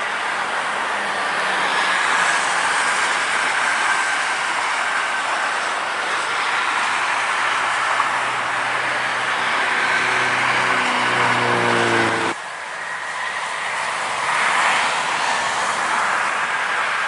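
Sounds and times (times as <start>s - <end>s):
highway traffic: 0.0s - 17.0s
heavy vehicle low hum: 8.7s - 12.4s.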